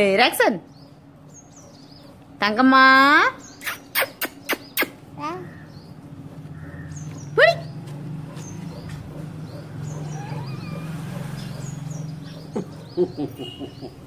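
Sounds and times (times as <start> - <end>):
birds chirping: 0.0 - 14.0
toddler vocal sounds: 5.0 - 5.6.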